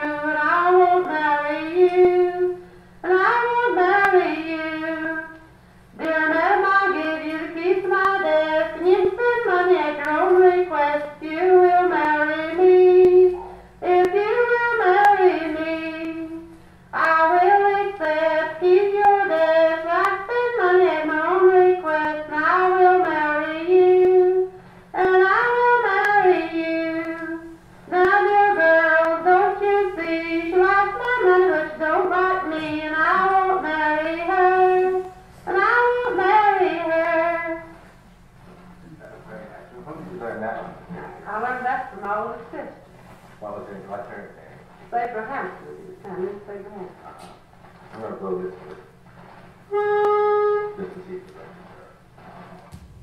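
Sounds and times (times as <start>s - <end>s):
woman singing unaccompanied: 0.0s - 37.8s.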